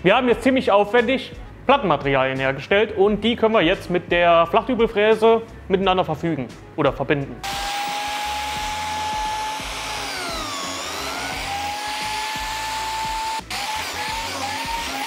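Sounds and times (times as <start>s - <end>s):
biscuit joiner whining: 7.4s - 15.0s
dust extractor rushing hiss: 7.4s - 15.0s.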